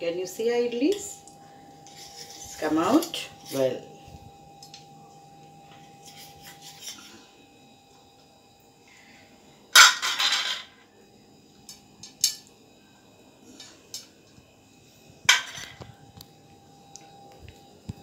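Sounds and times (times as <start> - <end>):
steel spoon scraping plate: 1.8 - 3.8, 6.0 - 7.2.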